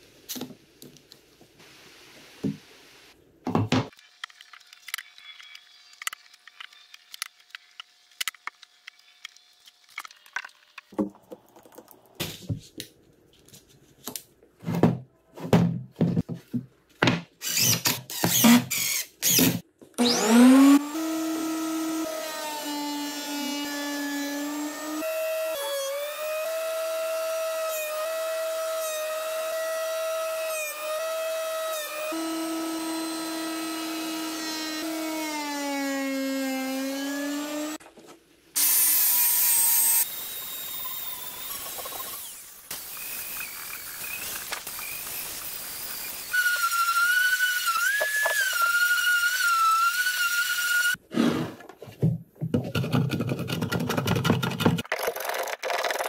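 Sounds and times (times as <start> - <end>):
angle grinder on wood: 17.4 - 37.8, 38.6 - 51.3
thickness planer whining: 18.3 - 37.8.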